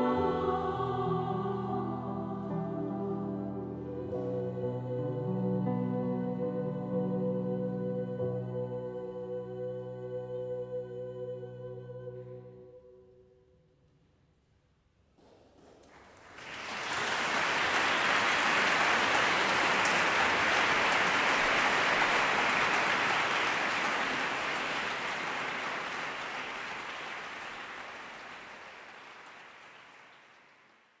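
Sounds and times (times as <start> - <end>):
audience applauding: 15.6 - 31.0.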